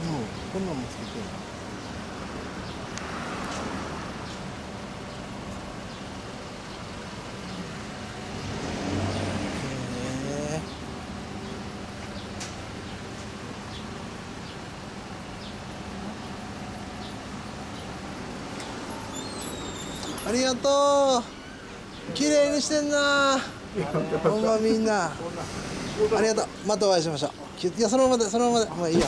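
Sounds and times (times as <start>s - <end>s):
street traffic noise: 0.0s - 29.0s
vehicle engine accelerating: 6.9s - 12.3s.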